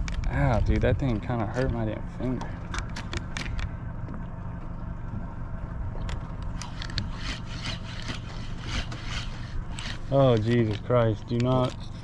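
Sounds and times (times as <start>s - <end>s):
boat engine idling: 0.0s - 12.0s
fishing reel scrapes and clicks: 6.6s - 12.0s.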